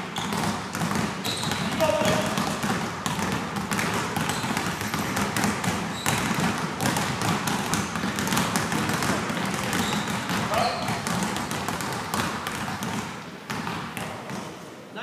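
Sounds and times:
basketballs bouncing on gym floor: 0.0s - 14.6s.

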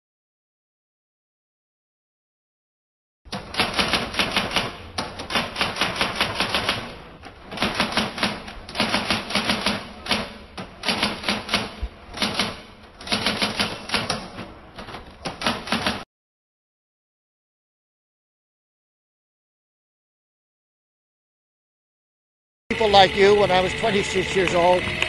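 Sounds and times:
fast keyboard typing: 3.4s - 6.9s, 7.6s - 14.3s, 15.2s - 16.0s.

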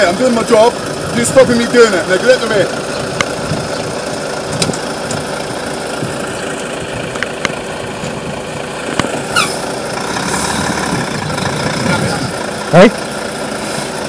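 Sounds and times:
diesel truck engine idling: 0.0s - 14.0s
sharp clicks: 4.6s - 5.3s
short high squeak: 9.3s - 9.7s.

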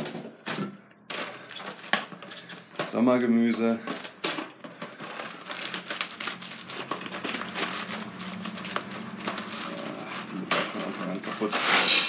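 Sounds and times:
cardboard carton crinkling: 3.8s - 11.8s.

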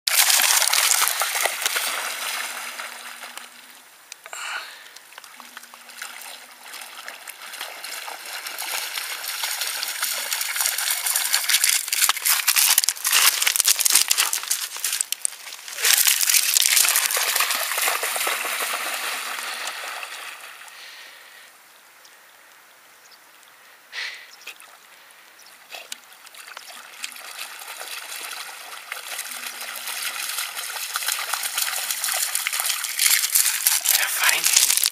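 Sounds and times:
dog splashing through water: 0.1s - 3.4s, 5.4s - 20.3s, 25.8s - 34.9s.

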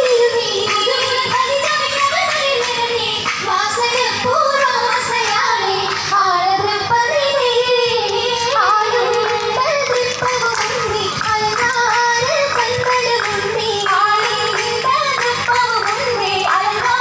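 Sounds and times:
music: 0.0s - 17.0s.

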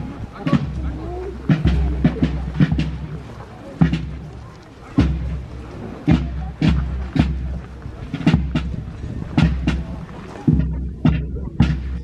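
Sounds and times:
bass drum strokes: 0.0s - 12.0s
snare drum strokes: 0.4s - 3.2s, 5.0s - 8.8s.

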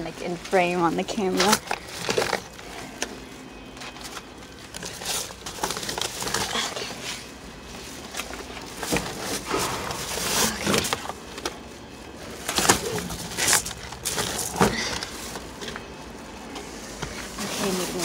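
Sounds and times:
plastic bags crinkling: 0.0s - 18.0s.

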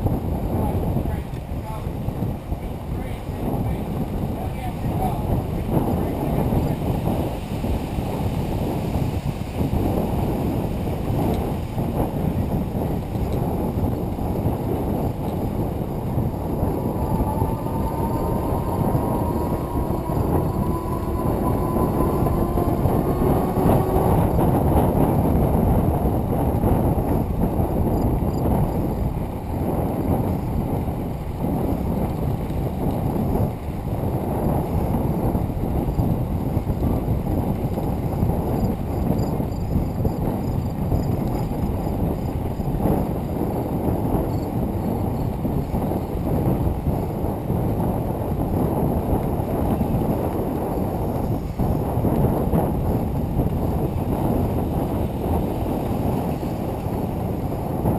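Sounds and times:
bicycle tyres rolling on gravel: 0.0s - 57.9s
wind buffeting microphone: 0.0s - 57.9s
faint rising whine: 16.2s - 25.3s.

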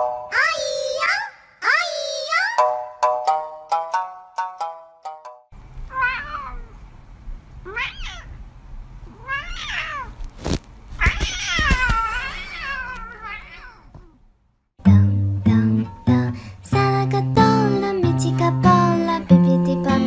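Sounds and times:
cat meowing: 5.9s - 6.8s, 7.6s - 8.4s, 9.1s - 10.2s, 11.0s - 14.2s.

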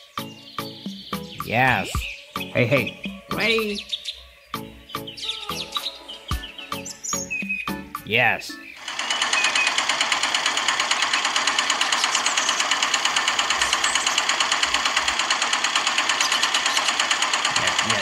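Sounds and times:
small motor clattering: 8.8s - 18.0s.

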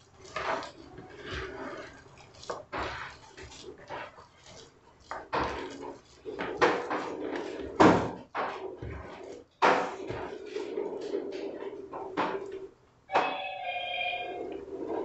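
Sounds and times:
hand squelching wet dough: 0.0s - 7.8s.

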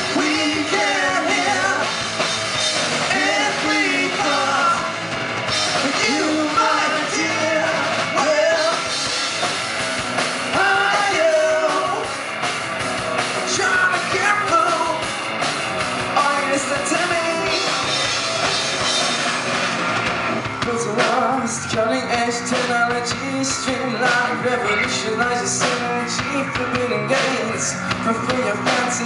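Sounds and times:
person singing: 0.0s - 2.0s, 5.8s - 8.9s, 10.5s - 12.1s
drum kit: 0.0s - 29.0s
electric bass: 0.0s - 29.0s
electric guitar: 0.0s - 29.0s.

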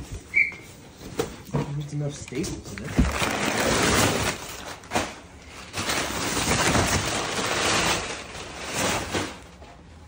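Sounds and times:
packing paper crackling and rustling: 2.1s - 10.0s.

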